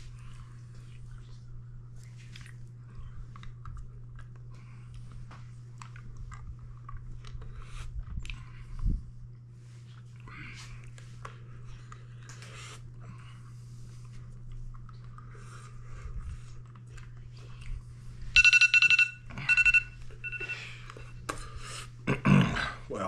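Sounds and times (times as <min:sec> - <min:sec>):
timer alarm beeping: 0:18.4 - 0:20.7.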